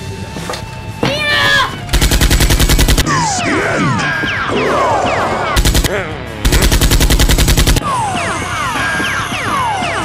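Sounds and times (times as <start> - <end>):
automatic gunfire bursts: 1.9 - 3.0, 5.6 - 5.9, 6.5 - 7.8.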